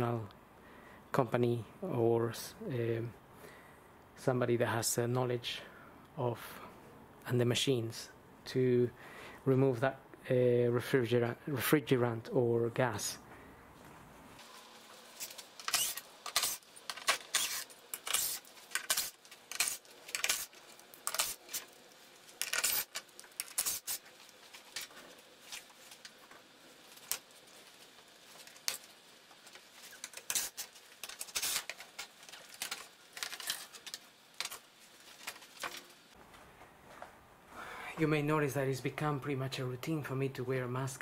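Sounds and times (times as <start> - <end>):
small items clicking and rattling: 14.4 - 36.0.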